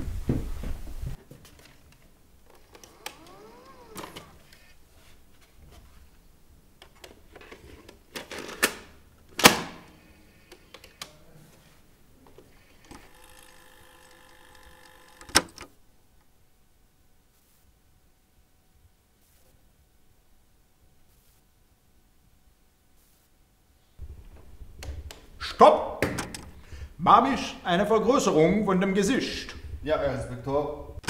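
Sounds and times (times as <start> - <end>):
tape motor whirring: 2.5 - 4.8, 12.5 - 15.7.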